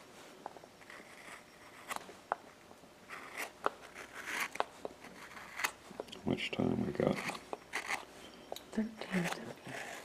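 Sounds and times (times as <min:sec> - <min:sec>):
carving gouge cutting wood: 0:00.8 - 0:02.0, 0:03.1 - 0:05.8, 0:06.6 - 0:08.1, 0:09.1 - 0:10.0.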